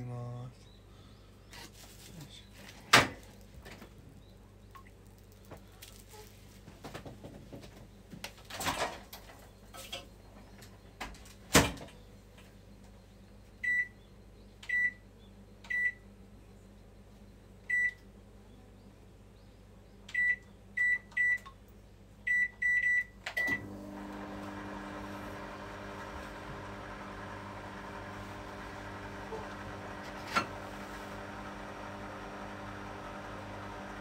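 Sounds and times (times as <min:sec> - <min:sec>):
microwave oven beeps: 0:13.6 - 0:14.0, 0:14.7 - 0:15.0, 0:15.7 - 0:16.1, 0:17.7 - 0:18.0, 0:20.1 - 0:21.5, 0:22.3 - 0:34.0.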